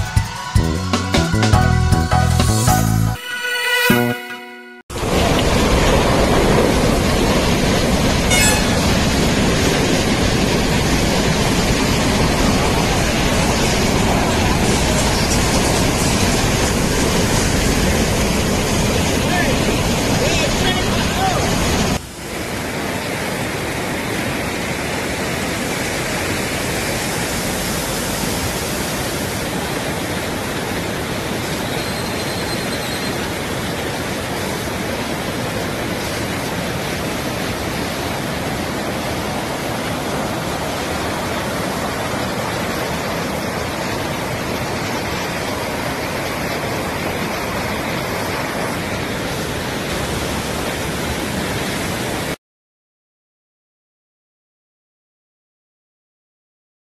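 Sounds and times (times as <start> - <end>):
floodwater rushing: 4.9 - 52.4.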